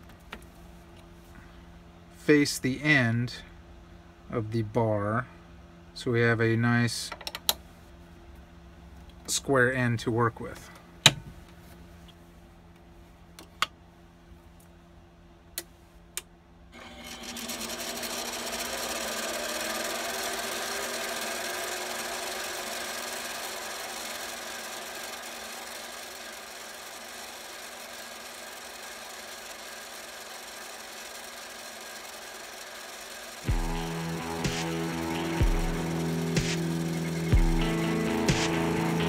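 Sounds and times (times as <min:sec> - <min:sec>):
lathe motor and gears running: 0:16.8 - 0:39.0.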